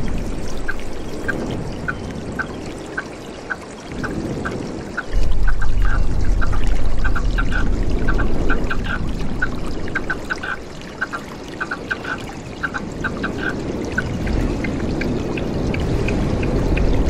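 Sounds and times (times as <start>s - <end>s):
stream water running: 0.0s - 17.0s
low rumble: 5.1s - 10.0s.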